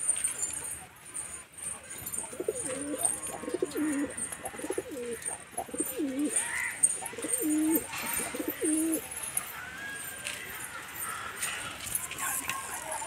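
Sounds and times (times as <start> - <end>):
pigeons cooing: 2.2 - 9.2.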